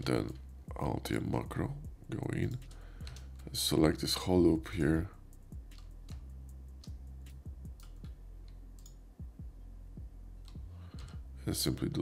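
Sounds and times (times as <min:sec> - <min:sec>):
steady low hum: 0:00.0 - 0:12.0
computer mouse clicks: 0:06.8 - 0:09.0.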